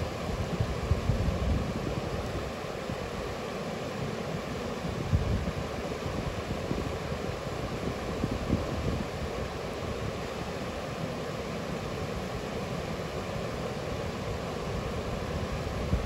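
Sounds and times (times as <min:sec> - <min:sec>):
wind buffeting microphone: 0:00.2 - 0:02.6, 0:04.8 - 0:09.3, 0:15.4 - 0:16.0
river water rushing: 0:01.7 - 0:16.0.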